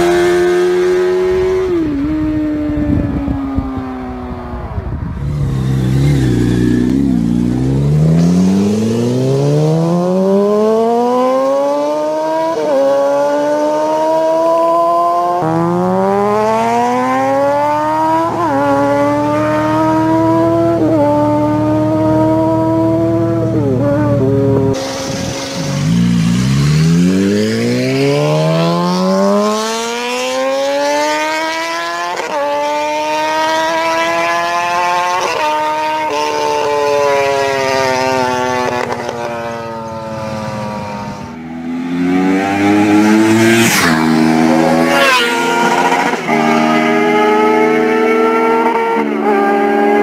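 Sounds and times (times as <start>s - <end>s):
motorcycle engine revving: 0.0s - 50.0s
motorcycle passing by: 0.0s - 50.0s.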